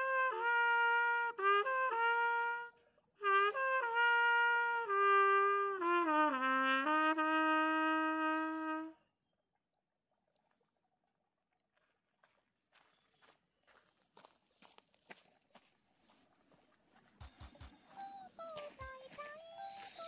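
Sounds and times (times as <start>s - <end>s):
solo trumpet: 0.0s - 9.1s.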